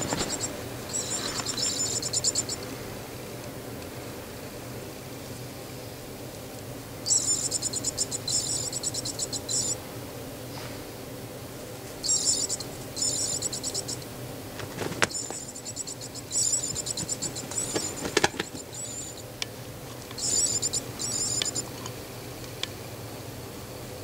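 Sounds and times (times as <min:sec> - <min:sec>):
insect-like chirping trills: 0:00.0 - 0:02.7, 0:07.0 - 0:09.9, 0:12.0 - 0:19.4, 0:20.1 - 0:21.8.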